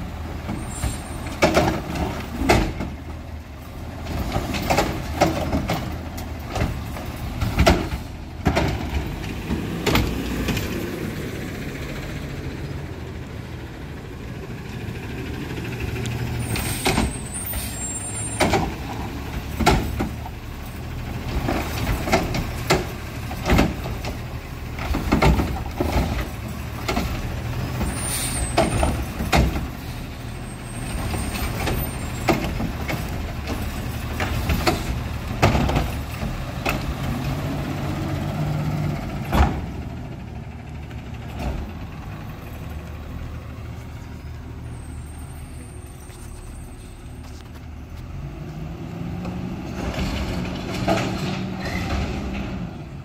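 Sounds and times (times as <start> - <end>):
carts clanking and banging: 0.0 - 11.2, 14.3 - 42.7, 49.2 - 53.0
diesel engine running: 0.0 - 53.0
air brakes hissing: 16.4 - 18.8, 27.8 - 28.8.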